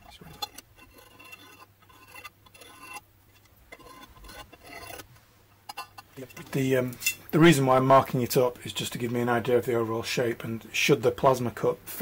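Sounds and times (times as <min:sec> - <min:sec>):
scriber scratching on steel: 0:00.0 - 0:05.1.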